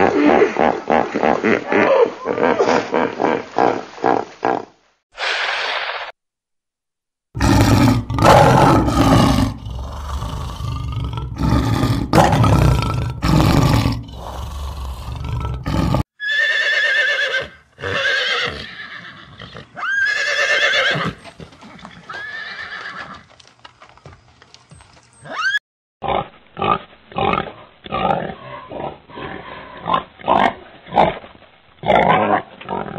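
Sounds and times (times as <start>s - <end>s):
lion roaring and grunting: 7.4s - 16.1s
horse whinnying: 15.7s - 21.2s, 22.0s - 23.2s.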